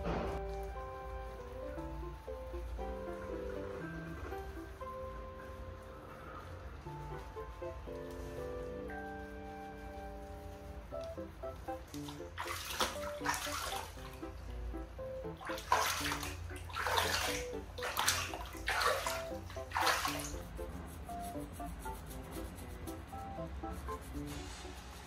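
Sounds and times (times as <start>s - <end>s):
light background music: 0.0s - 25.0s
water splashing in plastic basin: 11.9s - 14.4s, 15.3s - 20.6s.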